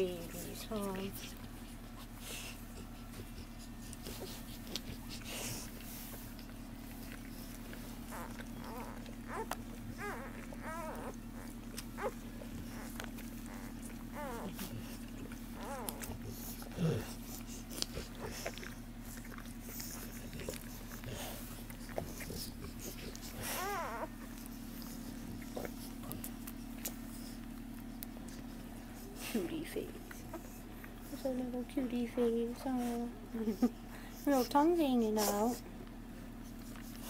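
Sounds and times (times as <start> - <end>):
puppies squealing: 8.0 - 16.7, 22.2 - 27.3.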